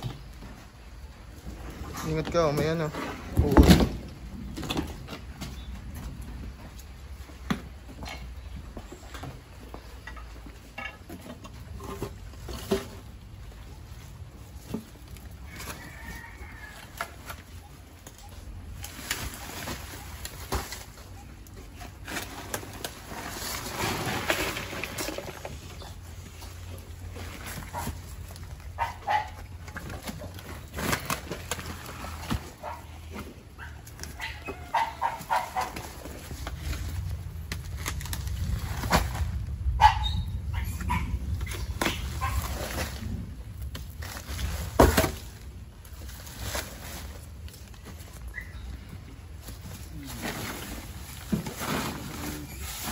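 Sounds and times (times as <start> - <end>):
sacks and undergrowth rustling: 0.0 - 52.9
dog barking: 28.8 - 29.4, 33.6 - 35.8, 39.8 - 41.2.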